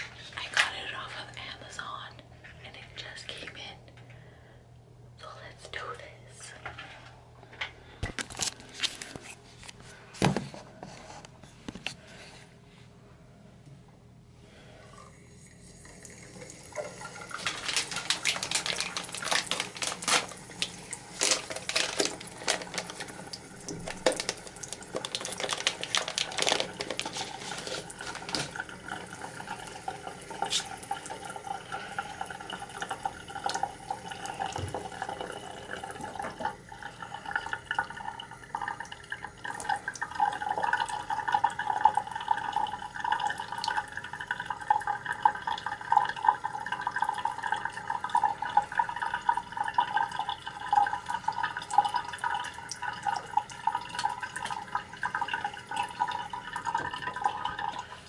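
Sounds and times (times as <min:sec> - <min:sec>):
faucet water splashing into sink: 0:15.3 - 0:58.0.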